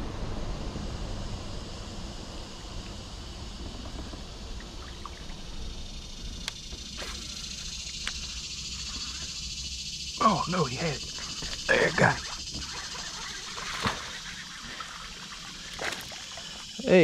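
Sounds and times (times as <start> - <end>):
sharp little ticks: 3.6 - 16.8.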